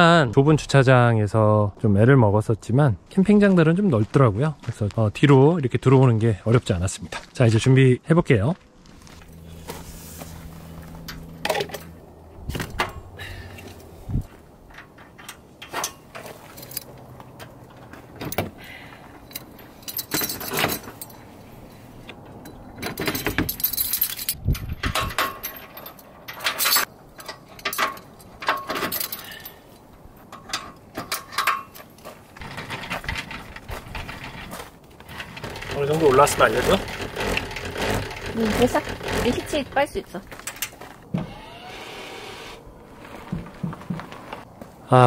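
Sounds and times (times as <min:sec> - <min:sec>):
metal hitch hardware clinking: 0:10.8 - 0:40.9.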